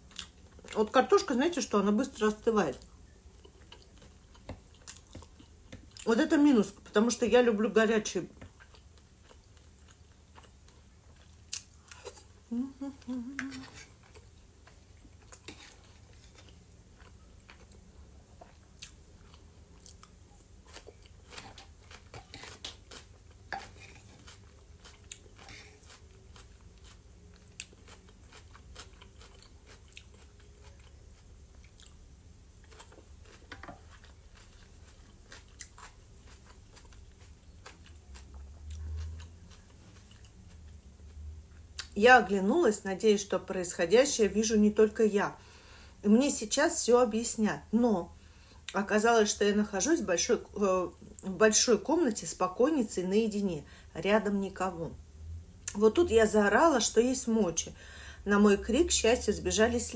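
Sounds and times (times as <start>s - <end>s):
person chewing food: 0.1s - 0.8s, 2.8s - 6.1s, 8.4s - 32.0s, 32.6s - 42.0s.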